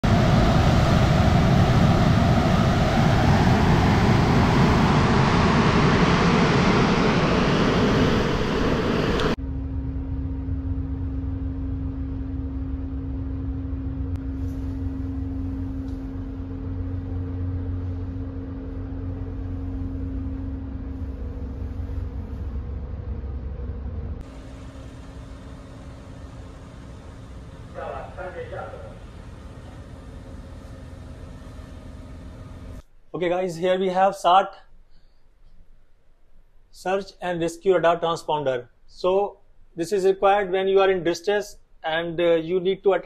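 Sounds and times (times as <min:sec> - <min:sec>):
ship machinery low hum: 0:00.0 - 0:32.9.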